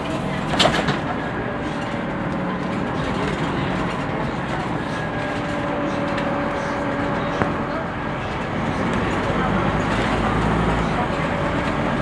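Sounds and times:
bus engine drone: 0.0 - 12.0.

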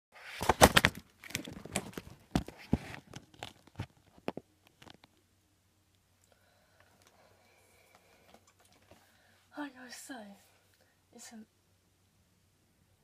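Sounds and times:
clicks and bumps: 0.4 - 5.2.

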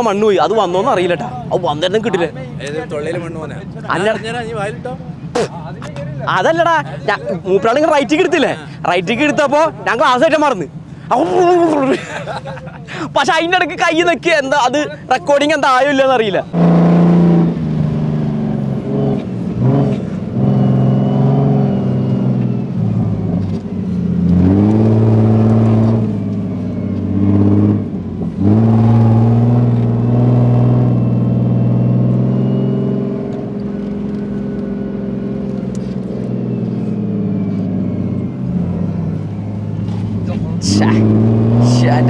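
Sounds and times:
car engine revving: 16.5 - 42.0.

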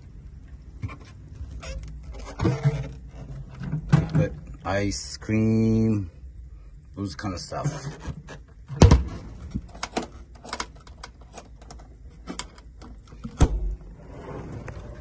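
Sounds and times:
light metal clicks and rattles: 9.6 - 13.2.

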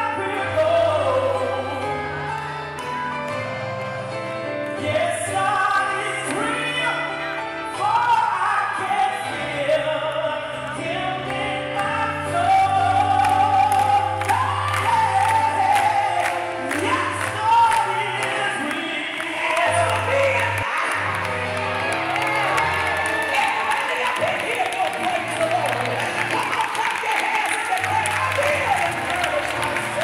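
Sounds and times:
woman singing gospel: 0.0 - 2.4, 4.8 - 30.0.

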